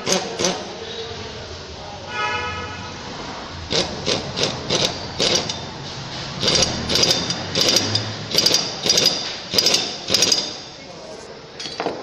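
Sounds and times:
pneumatic impact wrench hammering: 0:00.0 - 0:00.7, 0:03.7 - 0:10.8.

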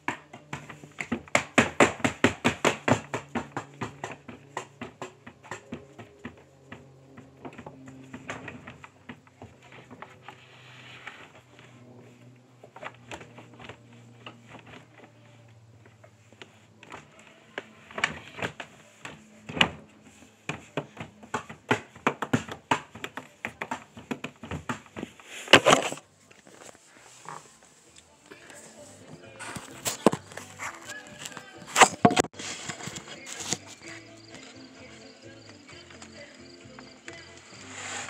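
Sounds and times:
faint low hum: 0:03.0 - 0:31.7
phone handling rustle: 0:25.0 - 0:33.9.

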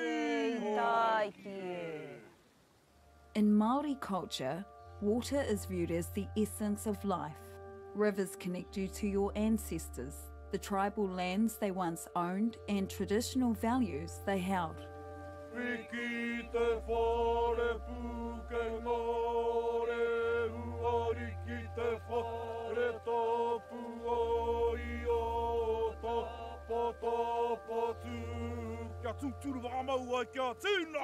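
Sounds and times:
low drone: 0:14.8 - 0:30.6
voice chanting long notes: 0:15.4 - 0:31.0.

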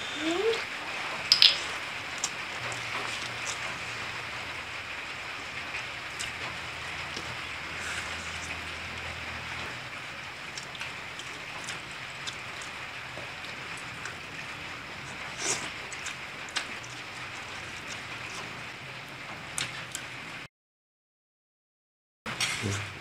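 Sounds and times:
wet mouth clicks and smacks: 0:01.3 - 0:02.4.

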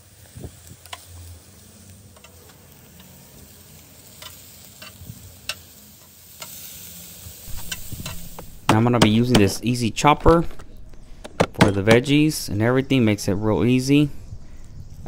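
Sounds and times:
shrimp sizzling on grill: 0:00.0 - 0:09.3.

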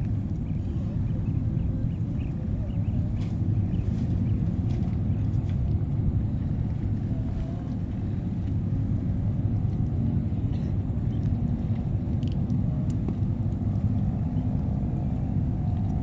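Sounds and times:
ship engine rumble: 0:00.0 - 0:16.0.

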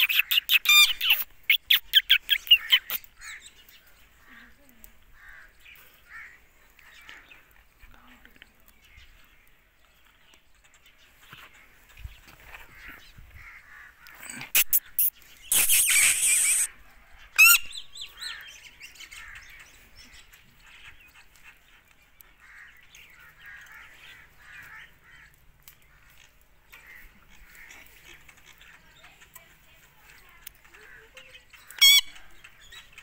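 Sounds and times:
parakeet screeching: 0:00.0 - 0:03.0, 0:14.5 - 0:16.7, 0:17.4 - 0:17.7, 0:31.8 - 0:32.1
faint bird chatter: 0:00.0 - 0:33.0.

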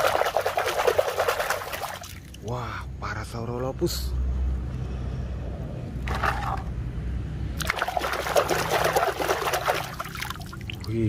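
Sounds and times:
hand splashing in water: 0:07.6 - 0:10.6.

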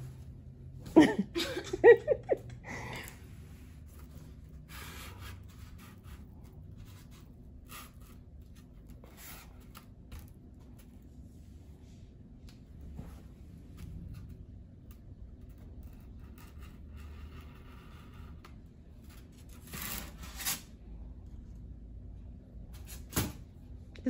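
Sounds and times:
foam board rubbing and scraping: 0:03.3 - 0:10.3.

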